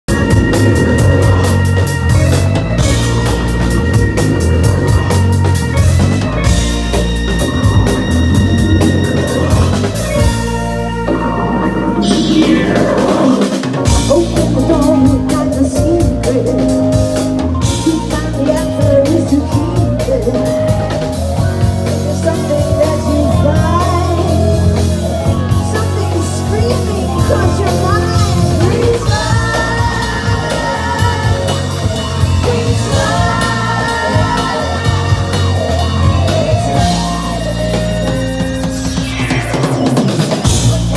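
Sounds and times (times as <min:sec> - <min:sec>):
bass guitar: 0:00.0 - 0:40.9
drum kit: 0:00.0 - 0:40.9
electric guitar: 0:00.0 - 0:40.9
keyboards: 0:00.0 - 0:40.9
woman singing: 0:14.0 - 0:17.0, 0:17.8 - 0:20.9, 0:22.0 - 0:24.7, 0:25.7 - 0:35.2.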